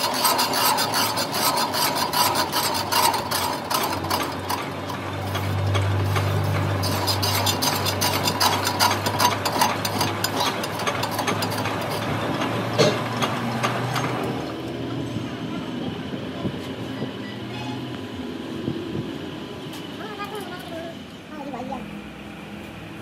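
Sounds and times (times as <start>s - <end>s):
cutter scraping metal with clicking: 0.0s - 14.1s
motor hum: 0.0s - 23.0s.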